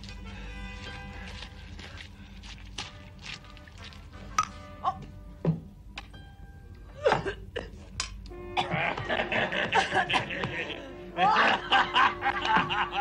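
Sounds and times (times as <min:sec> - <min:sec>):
background music: 0:00.0 - 0:13.0
men laughing heartily: 0:08.6 - 0:13.0.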